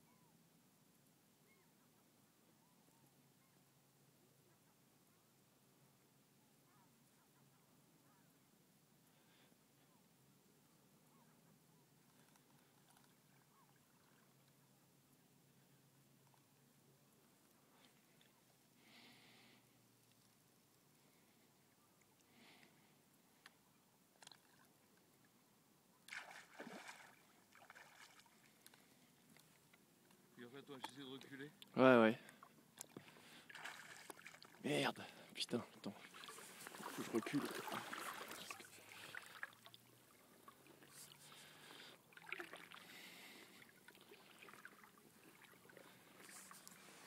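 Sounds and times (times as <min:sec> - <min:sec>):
water splashing: 0:26.1 - 0:28.6, 0:32.8 - 0:34.8, 0:35.8 - 0:47.0.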